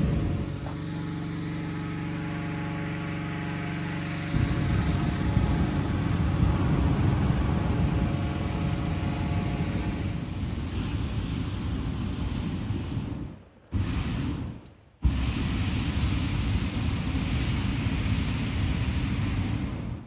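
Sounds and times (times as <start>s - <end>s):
small engine running: 0.0s - 10.5s
propane burner rushing blast: 0.0s - 20.0s.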